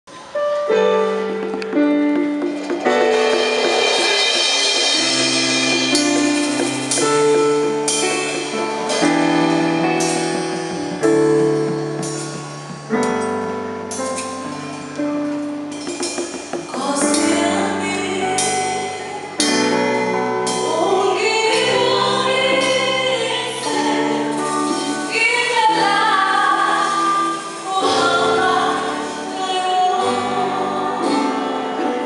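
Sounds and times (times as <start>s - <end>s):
slow piano chords: 0.1s - 32.0s.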